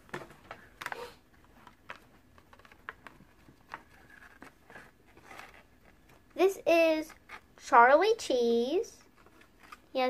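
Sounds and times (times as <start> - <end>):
paper and cardboard rustling: 0.0 - 6.4.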